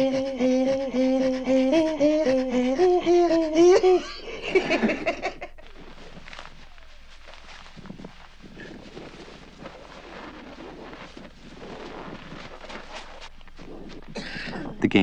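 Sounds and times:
women throat singing: 0:00.0 - 0:05.1, 0:06.0 - 0:14.8
women laughing: 0:03.6 - 0:05.7.

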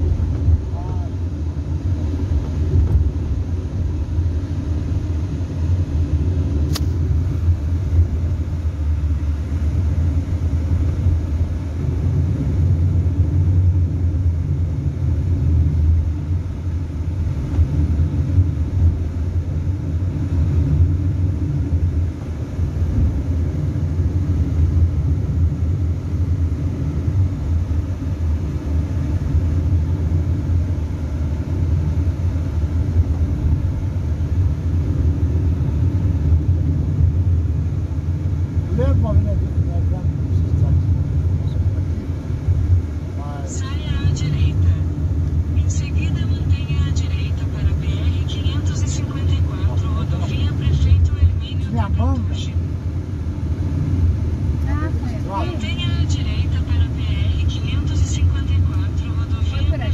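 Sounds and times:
car engine and tyres rumbling: 0:00.0 - 0:59.9
short click: 0:06.7 - 0:07.0.

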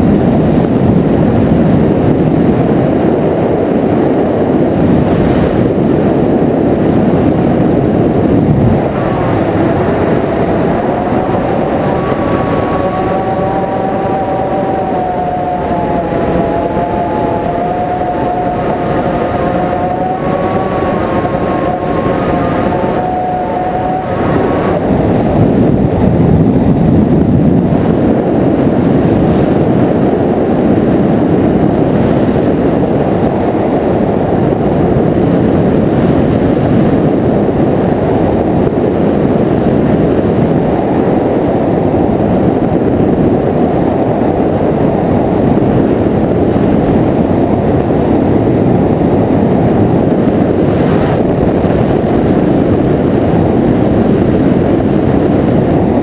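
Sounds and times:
engine and propeller running: 0:00.0 - 0:56.0
wind rush on microphone: 0:00.0 - 0:56.0.

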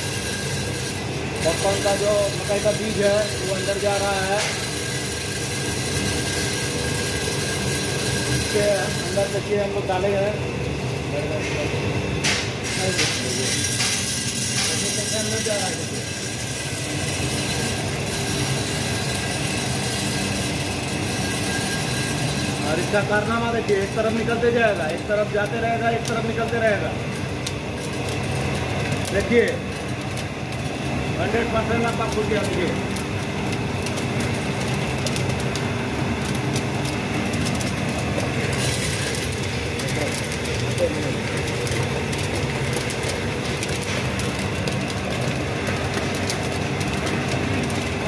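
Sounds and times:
popcorn roaster drum running: 0:00.0 - 0:48.0.

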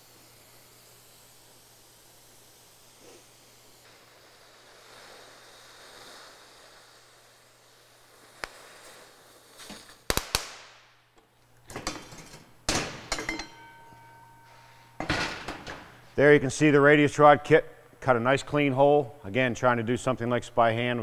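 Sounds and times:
cutting torch hissing: 0:00.0 - 0:10.1
sharp pops: 0:08.3 - 0:09.0, 0:09.6 - 0:10.9
metal clanks: 0:11.6 - 0:15.9
steel ringing: 0:11.8 - 0:15.5.

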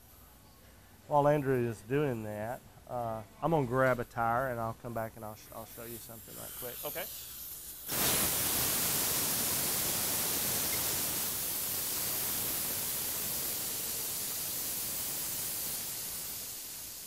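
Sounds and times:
air hissing out of a tire: 0:05.5 - 0:17.0.

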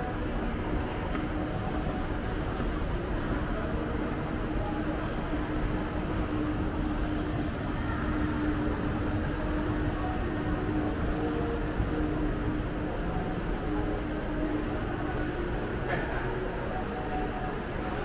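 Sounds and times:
shopping mall background noise: 0:00.0 - 0:18.0.

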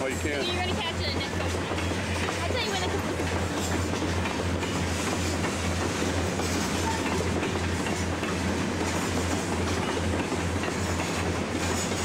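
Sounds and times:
diesel locomotives throbbing: 0:00.0 - 0:12.0
train rumble: 0:00.0 - 0:12.0.

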